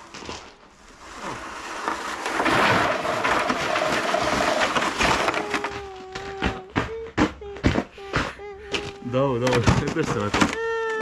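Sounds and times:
sled scraping on snow: 0.0 - 6.6
knocks: 3.3 - 10.8.

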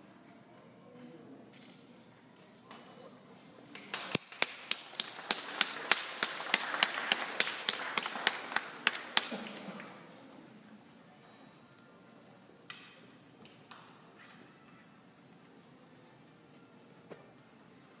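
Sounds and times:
audience applauding: 3.7 - 10.0
close loud hand clapping: 3.7 - 10.0.

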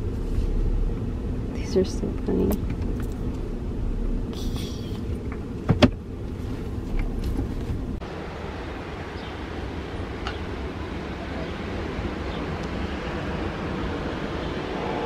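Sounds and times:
car interior rumble: 0.0 - 15.0
wind and ocean surf: 8.0 - 15.0.

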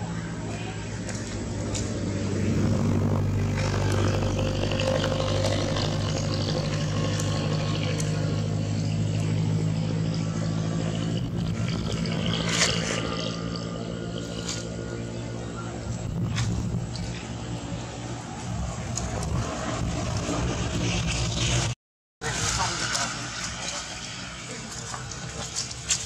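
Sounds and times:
motor engine humming: 0.8 - 21.8.

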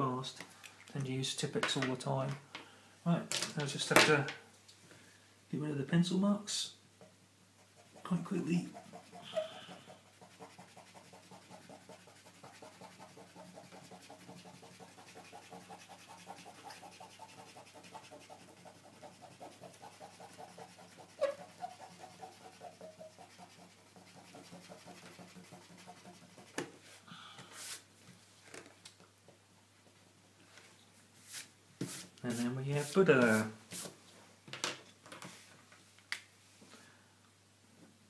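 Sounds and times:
eraser scrubbing on paper: 7.6 - 26.6, 31.3 - 33.9.

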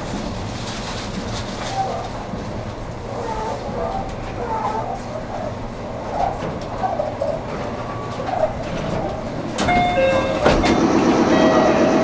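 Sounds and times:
electric train running: 1.7 - 12.0
short ringing tone: 9.7 - 10.5.

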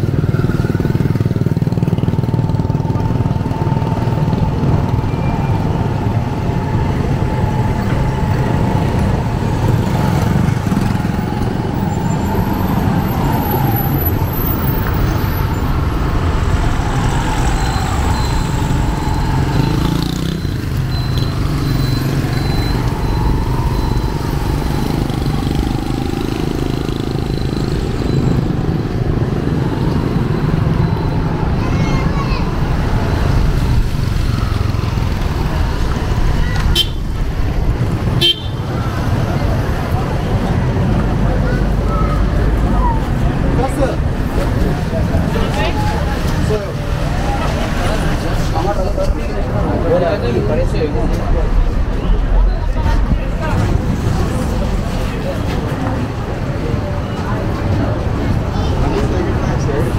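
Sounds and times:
vehicle engines passing: 0.0 - 59.9
wavering engine whine: 2.2 - 31.6.

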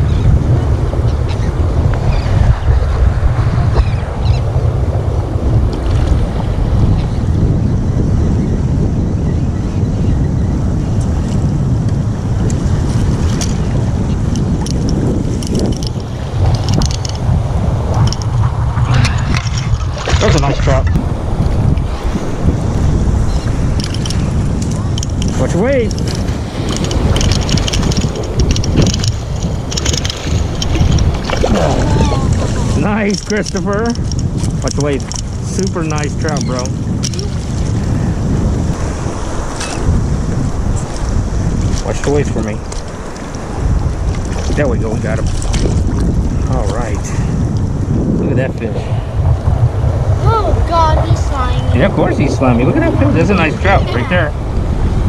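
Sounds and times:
shallow surf washing: 0.0 - 55.0
wind buffeting microphone: 0.0 - 55.0
fish thrashing and splashing: 19.2 - 20.8, 25.9 - 32.8.

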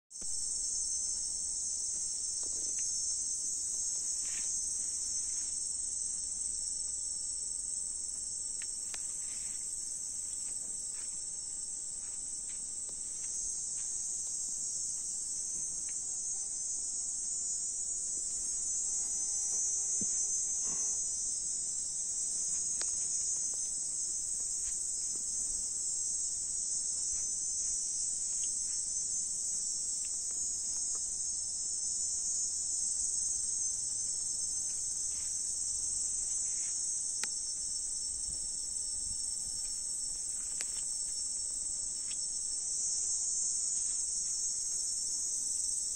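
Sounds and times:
crickets chirring: 0.2 - 45.9.

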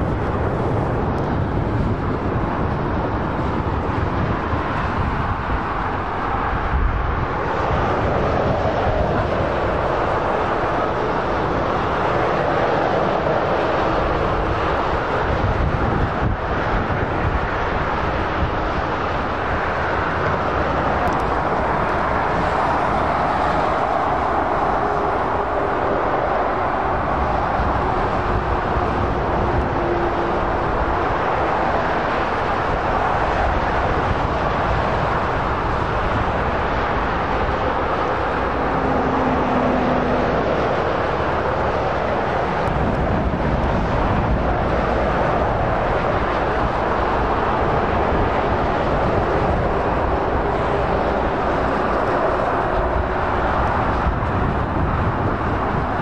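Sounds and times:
train wheels roaring on rail: 0.0 - 56.0.

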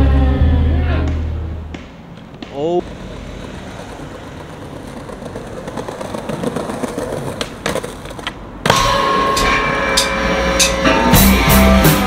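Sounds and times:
skateboard clacks: 1.1 - 8.9
skateboard wheels rolling on pavement: 1.7 - 9.8
rock music with guitar and drums: 10.2 - 12.0.

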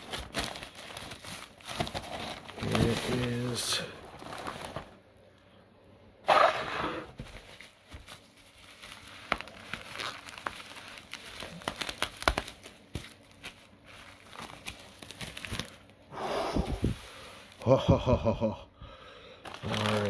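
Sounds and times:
bubble wrap crackling: 0.0 - 5.0, 7.2 - 16.1, 16.7 - 17.8, 19.4 - 20.0.

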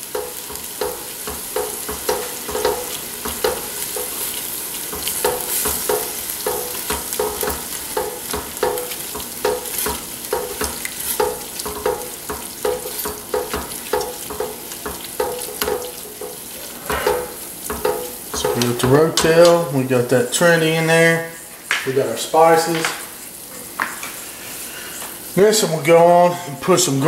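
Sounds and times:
steady sizzle: 0.0 - 27.0
spatula scraping pot: 0.1 - 19.6.

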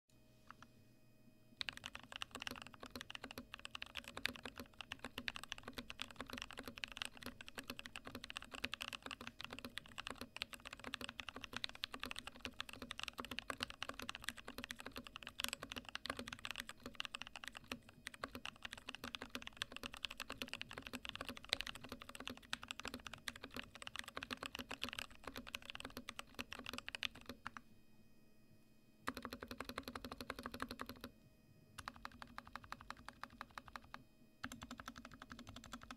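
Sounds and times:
mechanical keyboard keystroke clacks: 1.6 - 27.6, 29.1 - 31.1.

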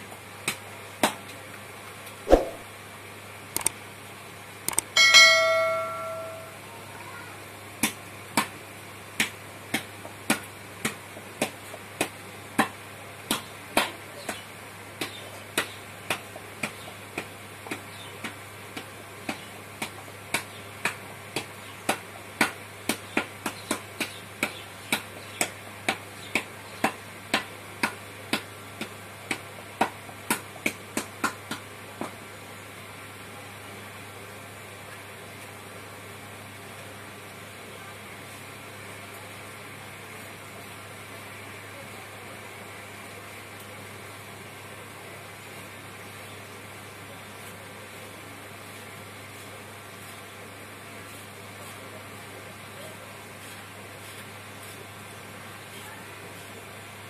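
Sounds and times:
low steady hum: 2.3 - 7.7.

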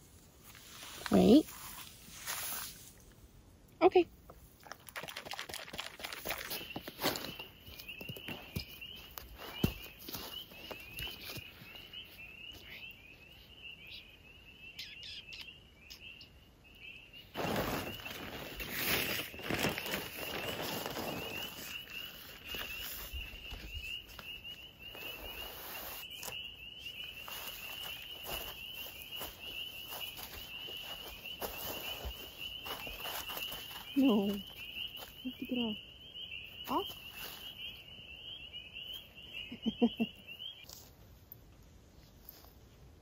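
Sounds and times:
rustling noise: 0.0 - 3.2, 17.3 - 35.3
frogs peeping in chorus: 6.3 - 17.4, 21.1 - 40.6.

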